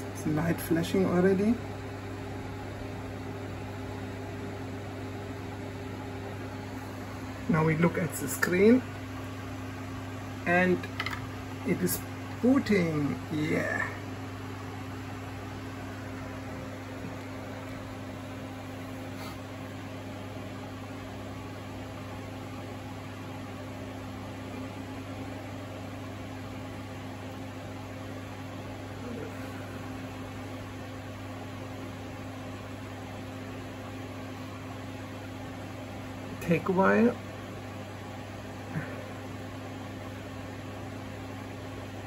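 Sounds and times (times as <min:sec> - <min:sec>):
low electrical hum: 0:00.0 - 0:42.0.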